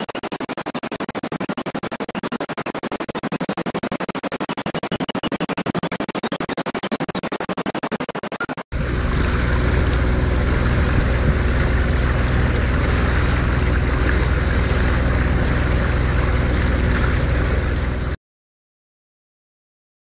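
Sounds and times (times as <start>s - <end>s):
boat engine droning: 8.7s - 18.2s
water rushing past hull: 8.8s - 18.2s.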